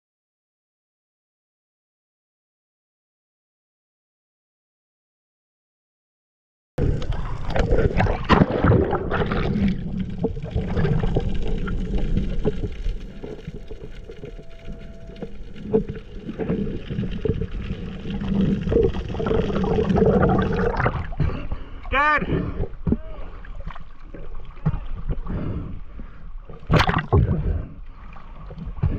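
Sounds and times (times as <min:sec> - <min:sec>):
muffled underwater water rush: 0:06.8 - 0:28.9.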